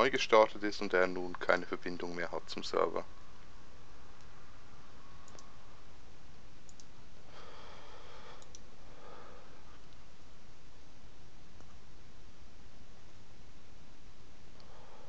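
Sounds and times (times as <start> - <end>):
steady background hiss: 0.0 - 15.0
computer mouse clicks: 5.2 - 5.5, 6.7 - 6.9, 8.3 - 8.7.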